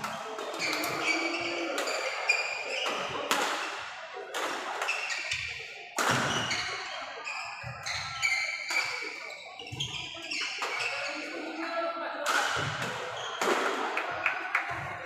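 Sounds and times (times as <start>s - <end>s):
shoes squeaking on wooden floor: 0.6s - 2.9s, 6.4s - 11.2s
rackets hitting shuttlecocks: 6.0s - 6.7s.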